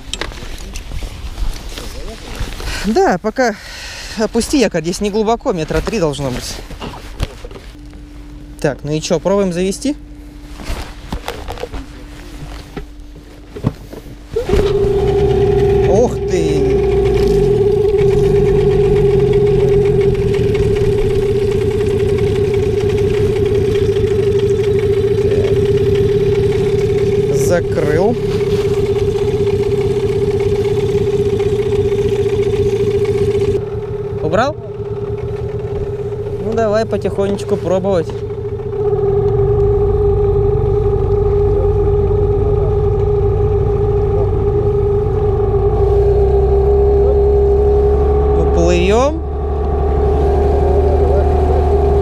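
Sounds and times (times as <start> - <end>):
outboard motor idling: 12.7 - 52.0.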